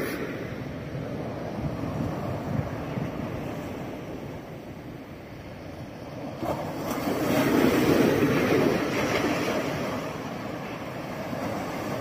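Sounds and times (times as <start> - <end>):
waves breaking on beach: 0.0 - 12.0.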